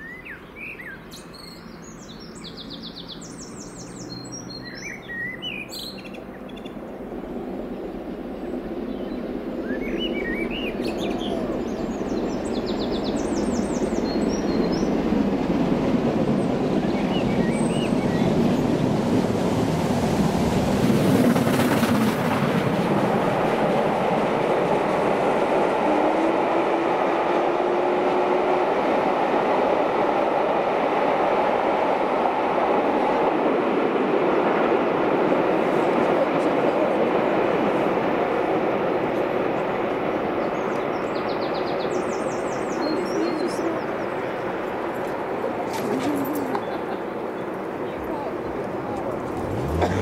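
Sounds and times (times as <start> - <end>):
steam train rumbling past: 6.3 - 50.0
birds chirping: 8.4 - 15.2, 16.3 - 18.8, 39.5 - 50.0.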